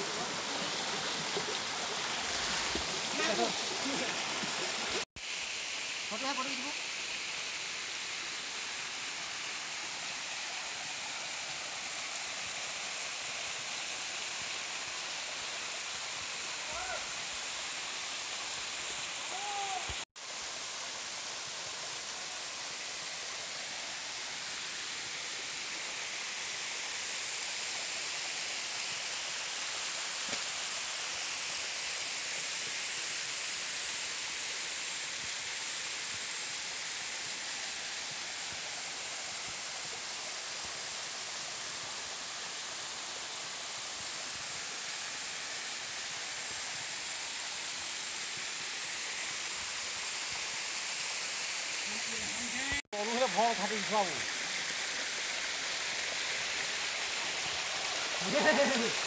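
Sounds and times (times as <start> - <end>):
water splashing down rock: 0.0 - 5.1.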